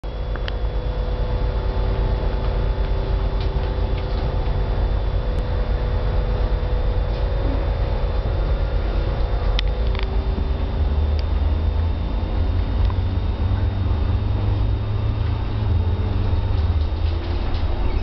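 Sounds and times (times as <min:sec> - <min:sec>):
bus cabin rumble: 0:00.0 - 0:18.0
constant hum: 0:00.0 - 0:18.0
faint high whine: 0:00.0 - 0:18.0.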